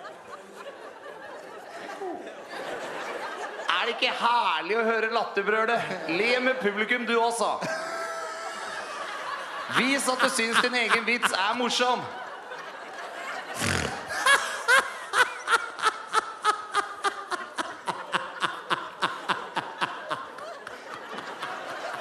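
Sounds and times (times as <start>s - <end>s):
man laughing: 7.6s - 12.2s, 13.5s - 20.5s.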